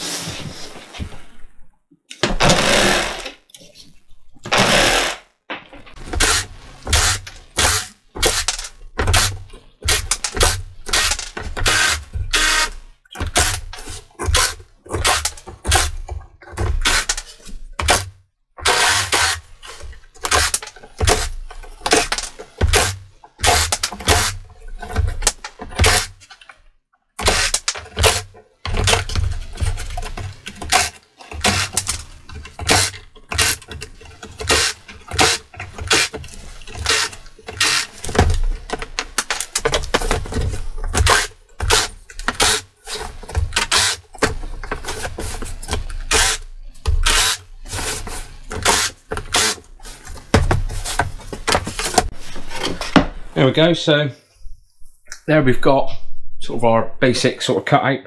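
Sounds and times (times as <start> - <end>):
jigsaw cutting wood board: 2.2 - 3.4, 4.5 - 5.3, 6.0 - 24.4, 25.0 - 26.3, 27.2 - 52.1.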